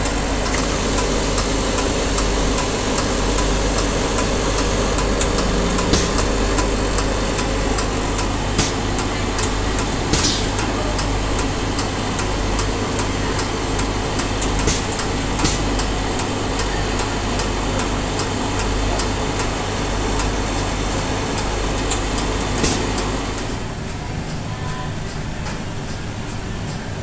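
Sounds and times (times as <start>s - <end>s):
drink dispenser humming: 0.0s - 23.8s.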